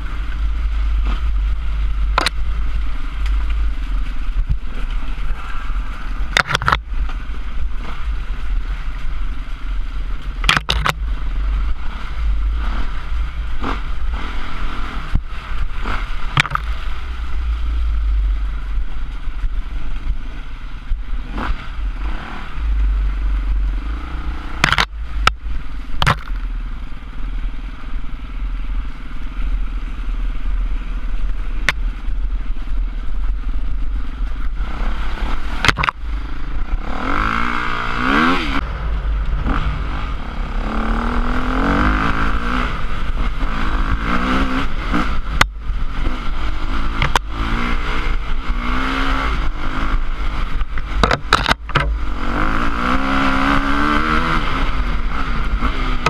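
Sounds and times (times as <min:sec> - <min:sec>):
motorcycle engine running: 0:00.0 - 0:56.0
motorcycle jolting clatters: 0:50.6 - 0:52.1.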